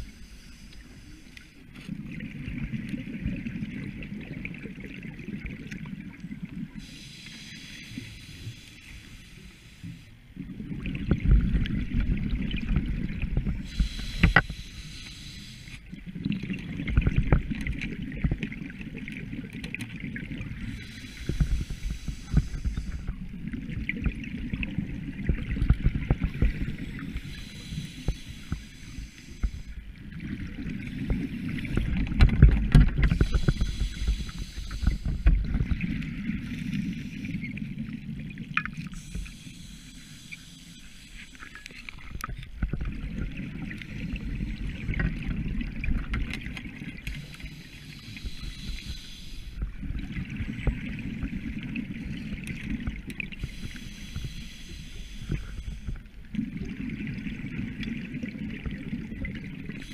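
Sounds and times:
regulator breathing hiss: 0.0s - 1.6s, 6.8s - 10.2s, 13.6s - 15.9s, 20.6s - 23.2s, 26.6s - 29.8s, 33.0s - 35.5s, 38.9s - 42.0s, 47.0s - 49.7s, 53.3s - 56.0s
underwater bubbling: 0.0s - 59.9s.

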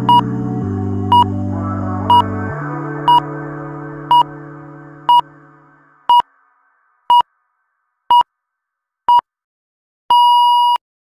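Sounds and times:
background music: 0.0s - 7.2s
timer beeps: 10.1s - 10.8s.

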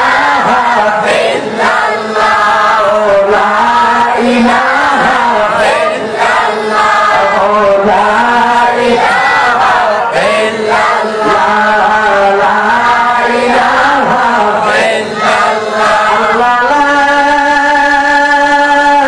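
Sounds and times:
man chanting into microphone: 0.0s - 19.0s.

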